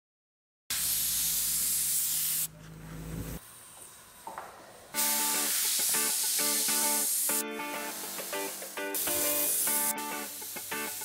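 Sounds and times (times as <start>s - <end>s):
spray gun hissing: 0.7s - 2.6s, 5.0s - 11.0s
plucked string music: 7.4s - 11.0s.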